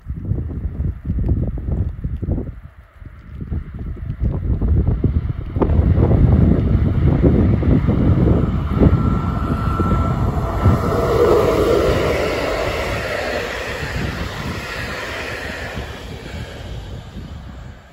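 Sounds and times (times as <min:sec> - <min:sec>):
wind buffeting microphone: 0:00.0 - 0:17.9
train wheels rumbling on rails: 0:03.3 - 0:17.9
electric locomotive hum: 0:04.6 - 0:17.9.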